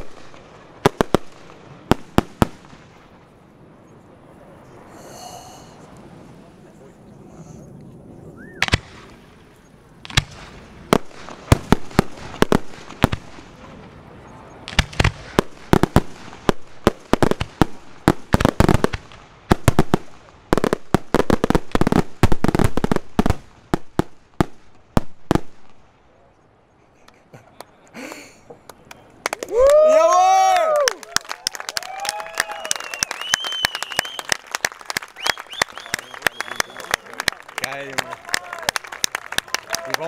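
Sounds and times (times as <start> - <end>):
fireworks bursting with bangs: 0.0 - 3.8, 8.5 - 26.0.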